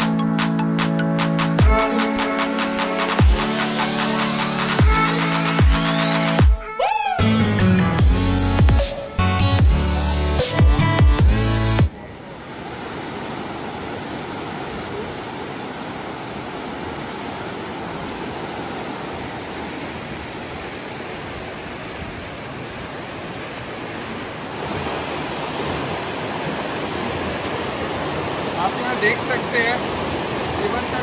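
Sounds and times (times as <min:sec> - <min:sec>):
rushing whitewater: 0:00.0 - 0:06.4, 0:11.8 - 0:31.0.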